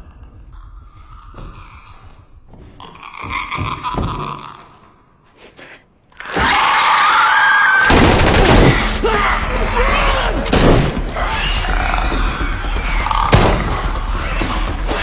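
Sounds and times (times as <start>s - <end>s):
loud gunshots: 7.8s - 9.0s.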